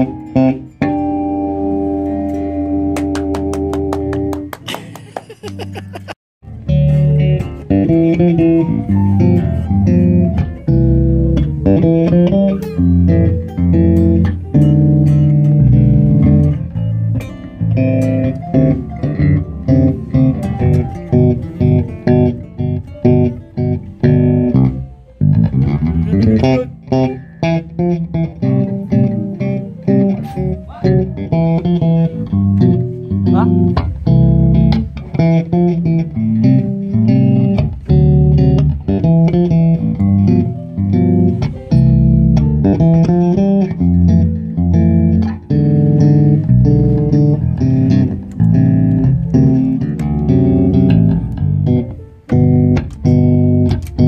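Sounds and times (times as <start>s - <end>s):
acoustic guitar: 0.0s - 54.0s
electric bass guitar: 0.0s - 54.0s.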